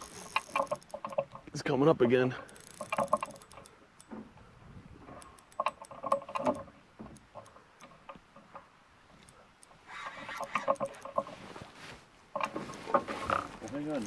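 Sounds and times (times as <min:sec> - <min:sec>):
fishing reel clicking: 0:00.0 - 0:01.3, 0:02.4 - 0:04.1, 0:05.2 - 0:06.6, 0:09.2 - 0:11.3.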